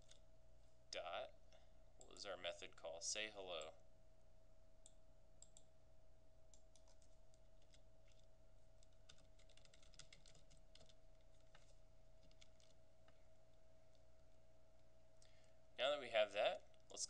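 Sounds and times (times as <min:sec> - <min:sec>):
faint steady hum: 0:00.0 - 0:17.0
typing on computer keyboard: 0:06.6 - 0:13.2.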